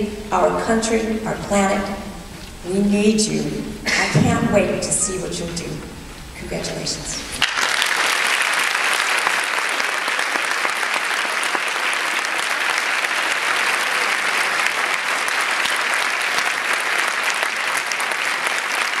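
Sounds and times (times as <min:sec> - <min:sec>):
audience applauding: 0:07.4 - 0:19.0.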